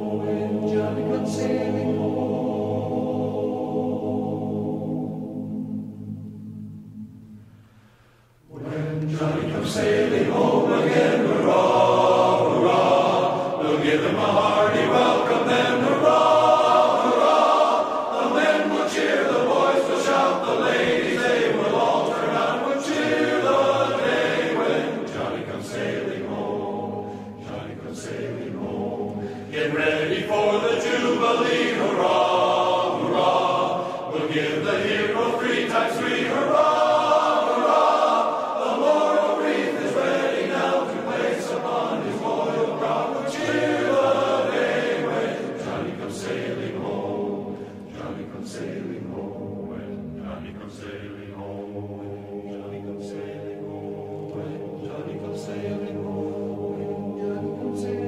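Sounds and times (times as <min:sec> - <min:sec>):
choir singing in harmony: 0:00.0 - 0:58.0.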